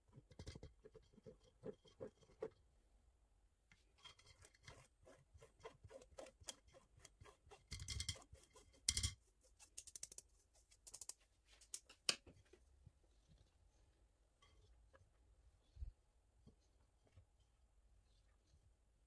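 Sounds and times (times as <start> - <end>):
spatula scraping through metal sieve: 4.0 - 10.0.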